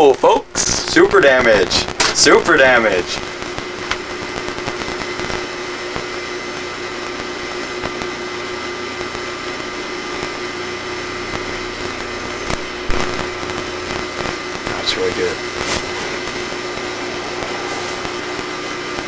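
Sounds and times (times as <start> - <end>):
small electric motor whirring: 15.5 - 19.0.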